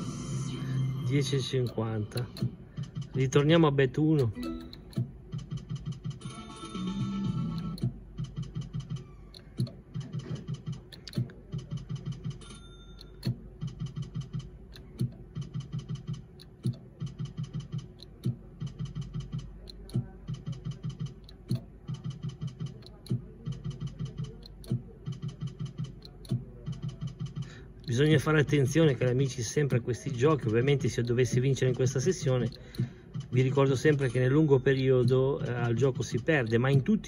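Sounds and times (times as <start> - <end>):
slot machine reel ticking: 0.0 - 37.0
slot machine reel spin clicks: 3.1 - 20.0, 27.9 - 37.0.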